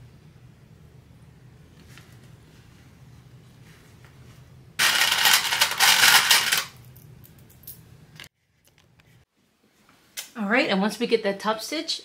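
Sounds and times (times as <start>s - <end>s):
clips rattling into metal tin: 4.8s - 6.7s.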